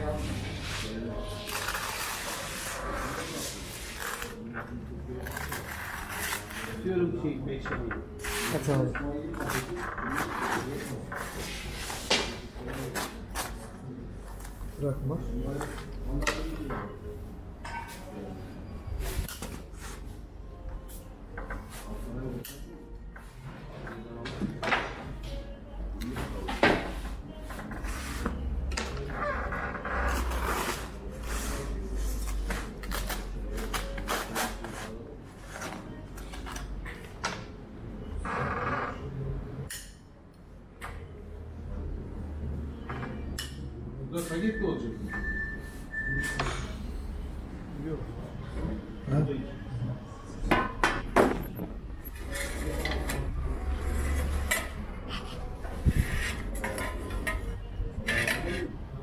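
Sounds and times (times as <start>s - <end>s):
tool scraping hard surface: 58.0s - 58.7s.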